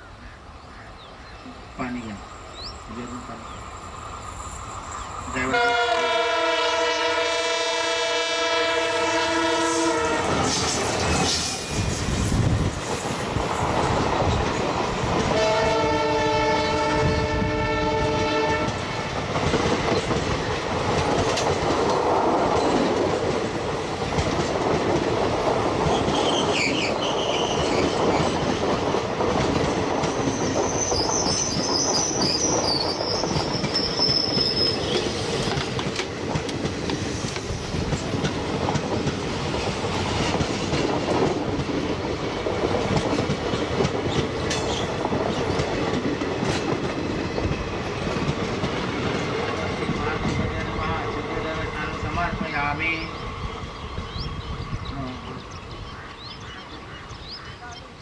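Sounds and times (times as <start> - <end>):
train coaches rumbling past: 0.0 - 58.0
wheels clacking over rail joints: 18.4 - 26.9, 27.6 - 50.8
wheel flange squeal: 30.3 - 35.2.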